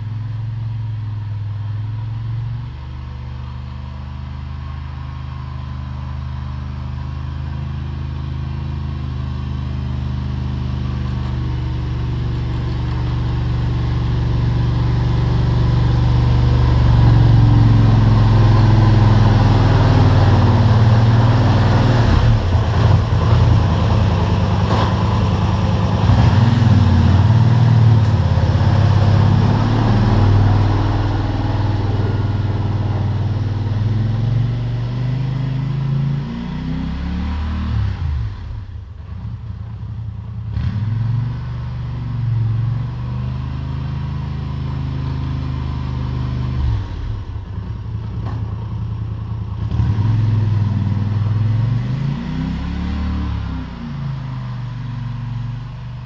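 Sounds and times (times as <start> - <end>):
atv engine running: 0.0 - 37.1, 38.0 - 55.9
plow blade pushing snow: 4.6 - 36.7.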